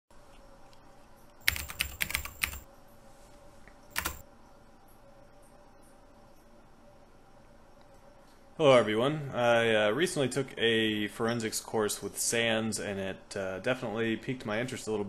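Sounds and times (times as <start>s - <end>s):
keyboard typing: 1.4s - 2.7s, 3.9s - 4.2s.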